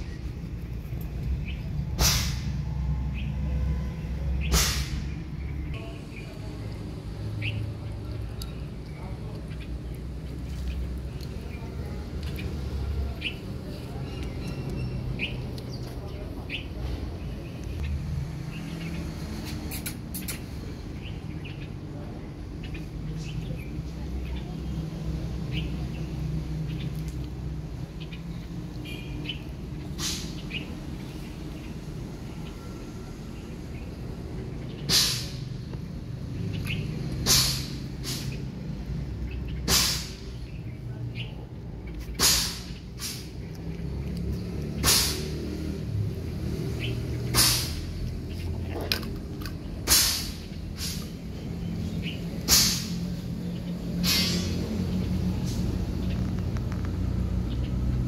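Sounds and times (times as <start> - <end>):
small birds chirping: 0.0 - 58.0
kitten hissing: 44.8 - 45.4, 54.0 - 54.6.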